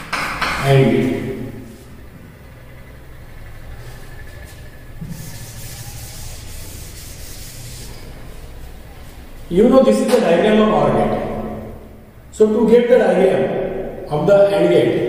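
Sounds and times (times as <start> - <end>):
duster scraping a blackboard: 3.7 - 9.2.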